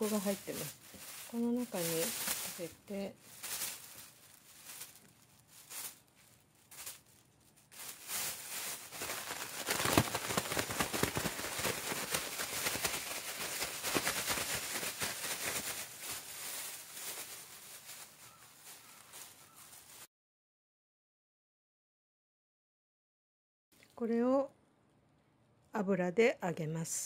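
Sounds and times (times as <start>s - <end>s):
plastic bag rustling: 0.0s - 20.1s.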